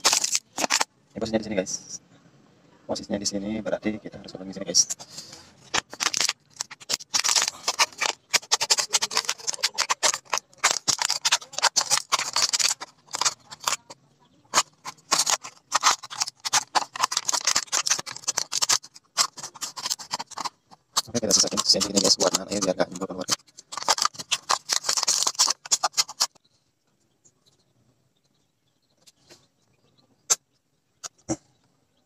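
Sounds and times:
scissors snipping plastic bottle: 5.7 - 13.9, 14.5 - 26.3.

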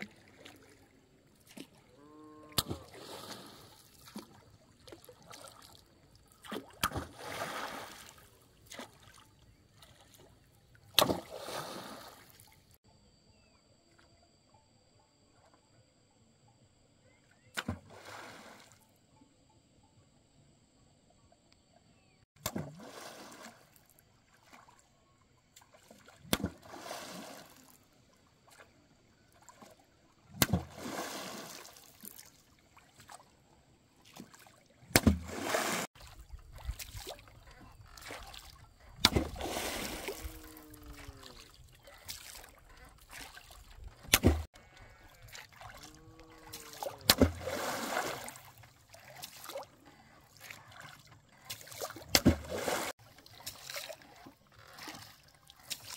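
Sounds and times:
pole slapping water: 0.0 - 1.9, 2.5 - 12.5, 17.5 - 17.9, 22.4 - 24.8, 25.6 - 27.7, 29.4 - 33.3, 34.0 - 55.9
water splashing: 0.0 - 12.8, 22.4 - 24.8, 25.6 - 27.8, 29.3 - 33.3, 34.0 - 55.9.

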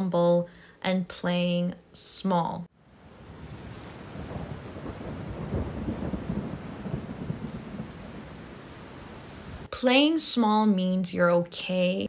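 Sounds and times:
steady rain: 2.7 - 9.8
rolling thunder rumble: 2.9 - 9.7.

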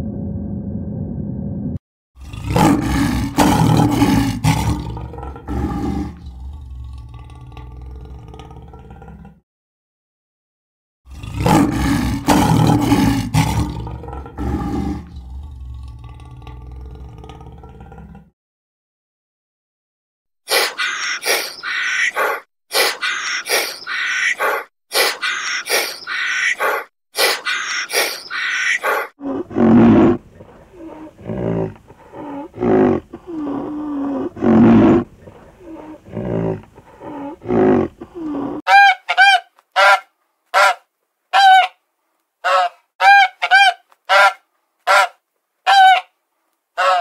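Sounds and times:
harsh rasping animal calls: 20.5 - 41.8, 42.4 - 46.1, 46.8 - 47.0.

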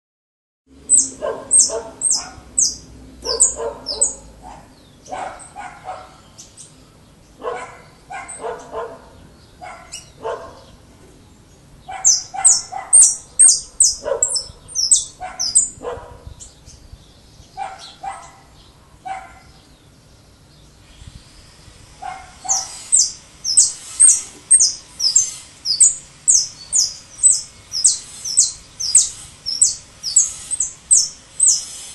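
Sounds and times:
finch singing high sharp notes: 0.8 - 4.4, 11.9 - 15.8, 22.3 - 31.9.

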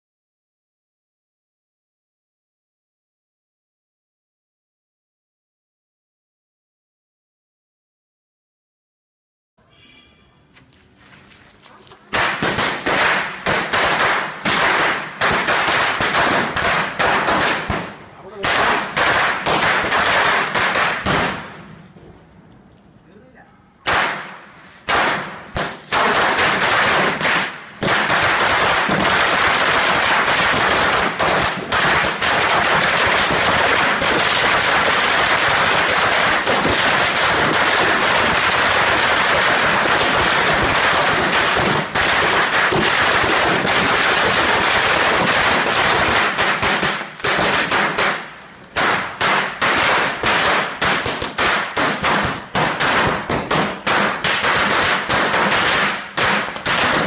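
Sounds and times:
firecrackers rattling: 11.1 - 22.2, 23.8 - 57.0.

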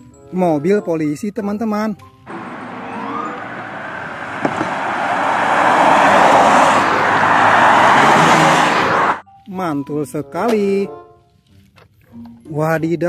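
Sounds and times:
rushing vehicle noise: 2.3 - 9.2
short rising tone: 2.3 - 9.2.

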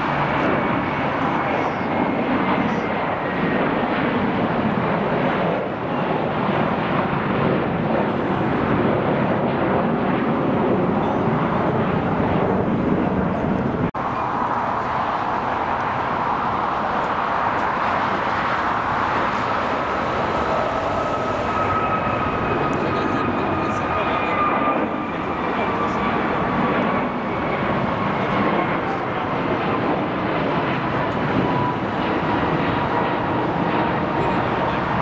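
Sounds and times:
jet engine rushing: 0.0 - 35.0
high engine whine: 9.8 - 35.0.

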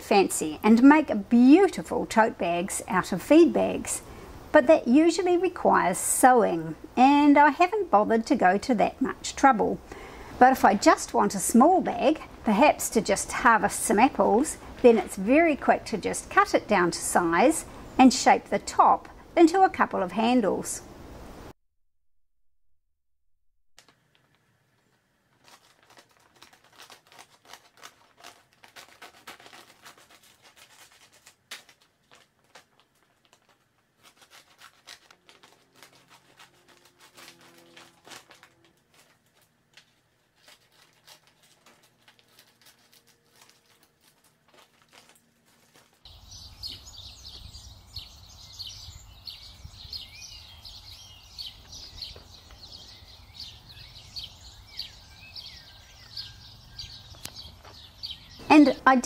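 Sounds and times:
plastic crinkling and rustling: 23.8 - 46.8
scissors snipping plastic bag: 25.3 - 46.1
rapid outdoor chirping: 46.0 - 59.0.

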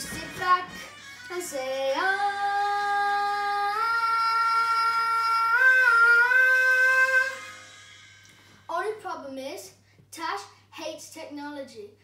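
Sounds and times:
boy singing held note: 0.4 - 7.6.

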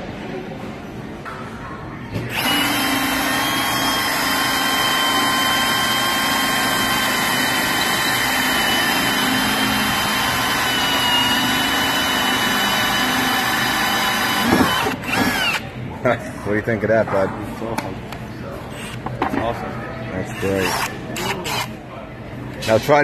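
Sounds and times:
drill motor whining: 2.3 - 15.6, 20.6 - 21.7
hole saw cutting wood: 2.3 - 15.6.

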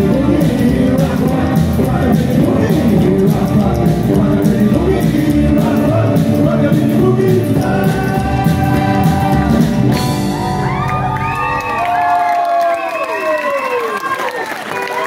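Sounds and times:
person singing: 0.0 - 10.3
rockabilly band playing live: 0.0 - 12.2
drums: 0.0 - 12.6.

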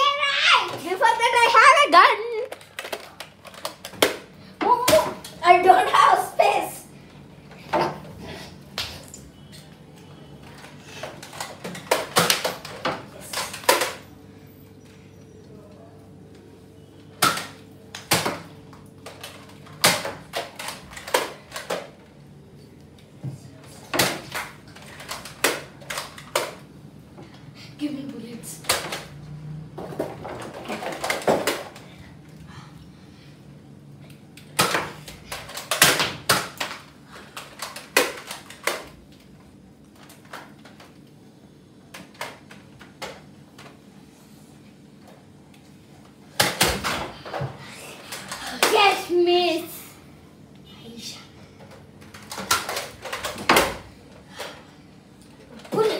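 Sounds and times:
toy blasters clacking and snapping: 2.4 - 4.2, 24.0 - 26.6.

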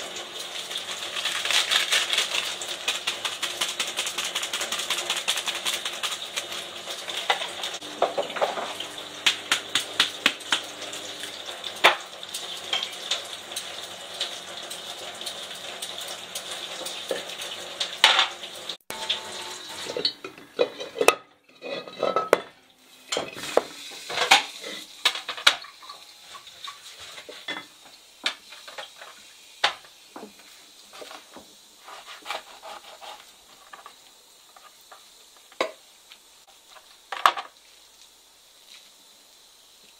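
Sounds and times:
oil sizzling in pot: 0.0 - 39.9
metal utensils and lids clinking: 0.7 - 10.0, 10.8 - 13.7, 15.8 - 29.9
knife on plastic cutting board: 31.8 - 33.8.

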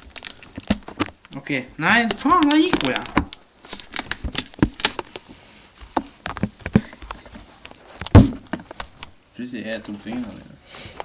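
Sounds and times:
loud thump: 8.1 - 8.5.

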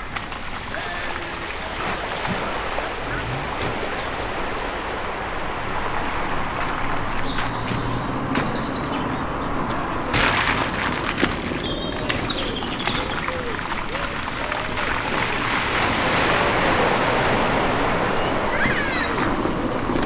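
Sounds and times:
tyres splashing through water: 0.0 - 20.0
bird chirps: 7.0 - 9.2, 11.4 - 13.2, 18.1 - 20.0
faint engine hum: 11.0 - 20.0.

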